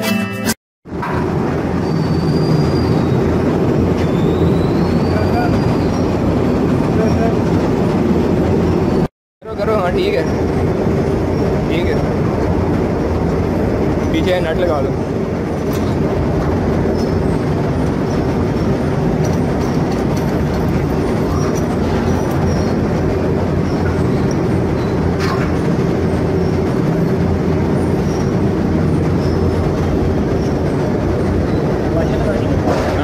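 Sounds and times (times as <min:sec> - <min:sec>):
machinery humming: 0:00.9 - 0:33.0.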